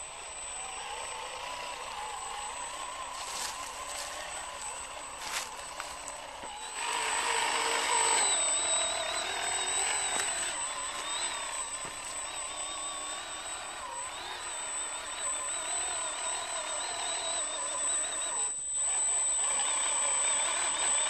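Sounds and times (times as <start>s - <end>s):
toy truck motors whining: 0.0s - 21.0s.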